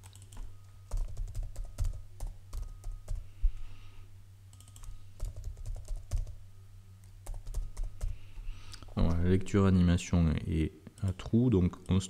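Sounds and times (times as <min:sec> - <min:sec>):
typing on a computer keyboard: 0:00.0 - 0:03.3, 0:04.5 - 0:06.4, 0:07.2 - 0:08.2
low electrical hum: 0:00.0 - 0:12.0.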